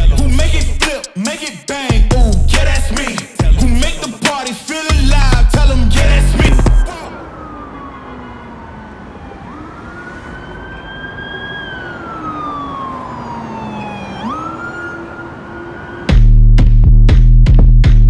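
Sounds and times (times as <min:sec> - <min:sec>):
loud hip-hop beat: 0:00.0 - 0:07.2, 0:16.1 - 0:18.0
siren wailing: 0:05.7 - 0:16.4.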